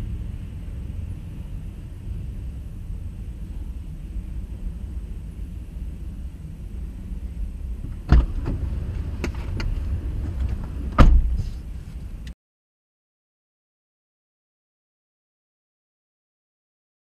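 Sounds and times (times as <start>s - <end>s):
freight train rumbling: 0.0s - 12.3s.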